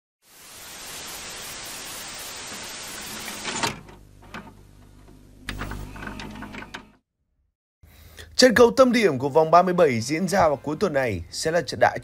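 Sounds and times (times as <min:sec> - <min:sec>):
static hiss: 0:00.2 - 0:03.8.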